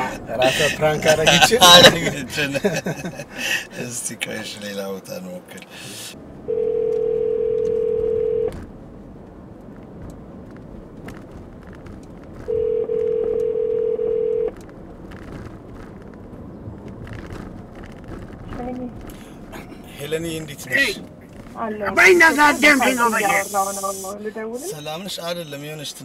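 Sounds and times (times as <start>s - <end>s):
telephone ringback tone: 6.5s - 8.5s, 12.5s - 14.5s.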